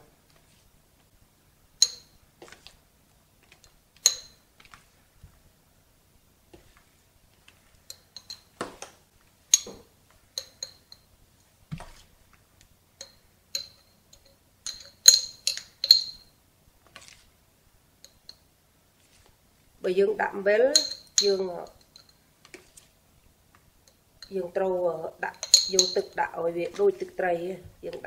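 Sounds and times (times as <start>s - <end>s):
metal spoon clinking glass jar: 1.8s - 2.2s, 4.0s - 4.4s, 7.9s - 8.5s, 10.4s - 11.1s, 13.0s - 16.3s, 20.7s - 22.2s, 25.3s - 26.2s.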